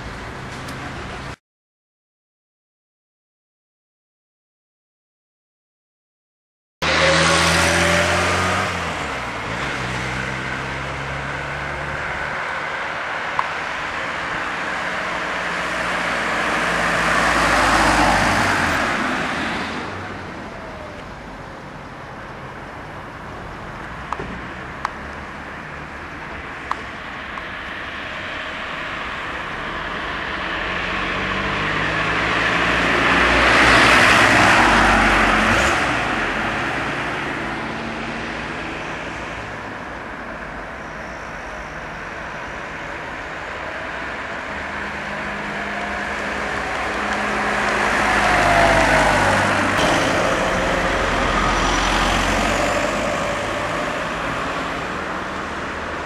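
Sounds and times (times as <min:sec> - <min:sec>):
cars passing by: 0:06.8 - 0:56.0.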